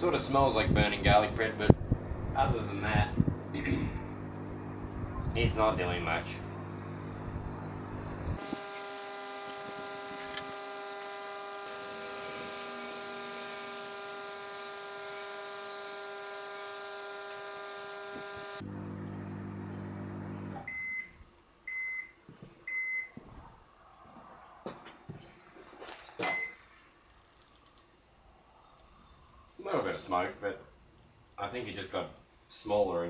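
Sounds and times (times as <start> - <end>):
microwave oven humming: 1.9 - 22.1
short beeps: 20.6 - 21.1, 21.7 - 23.2, 26.2 - 26.6.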